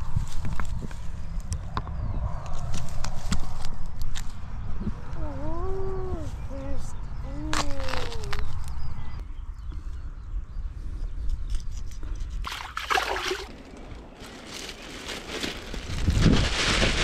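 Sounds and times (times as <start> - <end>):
hands splashing in water: 12.4 - 13.5.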